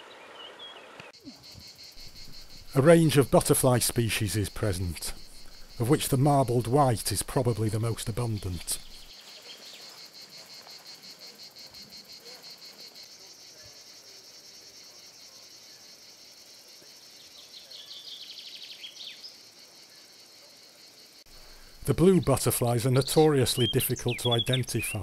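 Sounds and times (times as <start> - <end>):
high-pitched insect chirring: 1.2 - 10.8
fast-pulsed insect chirring: 1.3 - 9.1.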